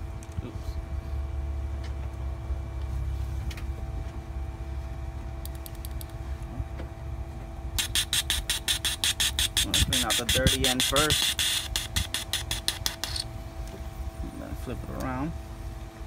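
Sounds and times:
steady low hum: 0:00.0 - 0:16.0
fuel injector hissing spurts: 0:07.8 - 0:13.2.

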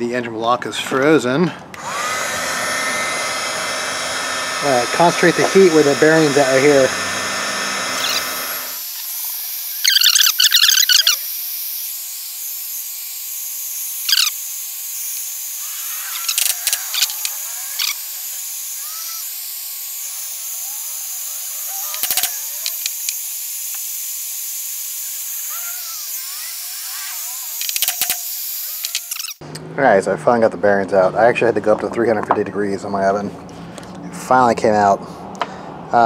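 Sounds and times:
heat gun fan hissing: 0:01.8 - 0:29.4
high chattering burst: 0:07.8 - 0:11.9, 0:13.8 - 0:29.4
faint chirps: 0:09.7 - 0:11.2
sharp clicks: 0:21.8 - 0:23.8, 0:27.6 - 0:29.4.

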